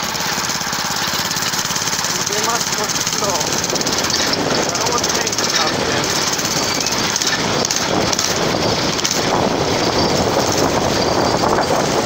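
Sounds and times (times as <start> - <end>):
go-kart engine clattering: 0.0 - 12.0.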